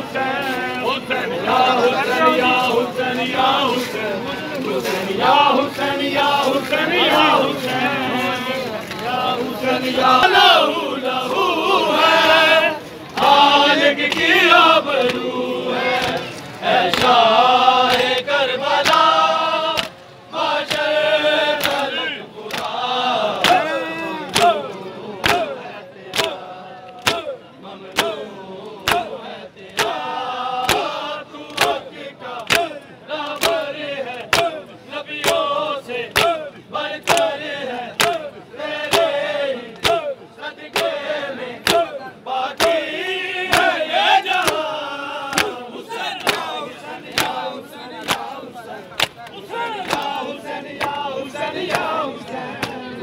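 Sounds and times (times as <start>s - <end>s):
crowd of men chanting: 0.0s - 53.0s
sharp slaps or claps: 15.9s - 17.2s, 17.9s - 19.1s, 19.7s - 20.0s, 20.6s - 22.8s, 23.4s - 24.6s, 25.2s - 34.6s, 35.2s - 35.5s, 36.1s - 36.4s, 37.0s - 37.4s, 38.0s - 40.1s, 40.7s - 41.0s, 41.6s - 42.0s, 42.6s - 42.9s, 43.5s - 44.7s, 45.3s - 48.3s, 48.9s - 50.2s, 50.8s - 51.0s
hands slapping chests: 25.2s - 25.5s, 28.8s - 29.1s, 37.0s - 37.3s, 38.0s - 38.2s, 38.8s - 39.1s, 42.6s - 42.8s, 45.3s - 45.6s, 46.2s - 46.5s, 47.1s - 47.4s, 48.0s - 48.3s, 49.0s - 50.2s.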